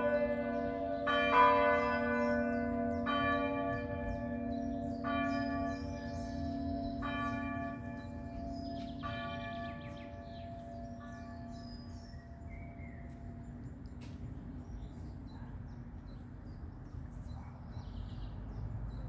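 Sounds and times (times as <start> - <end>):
church bells ringing: 0.0 - 14.6.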